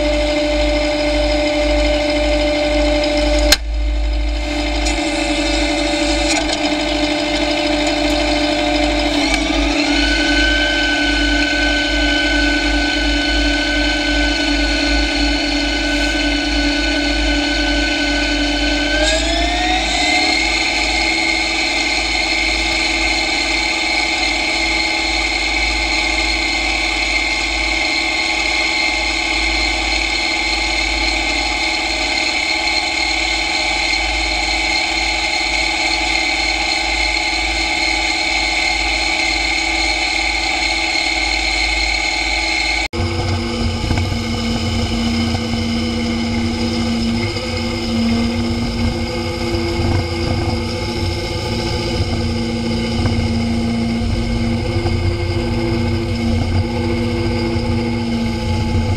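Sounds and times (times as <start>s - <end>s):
high gear whine: 0.0s - 58.9s
tractor engine under load: 0.0s - 58.9s.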